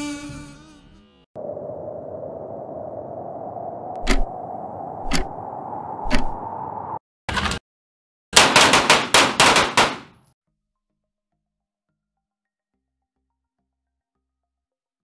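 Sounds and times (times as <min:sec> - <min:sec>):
handgun shots: 0:08.4 - 0:10.2.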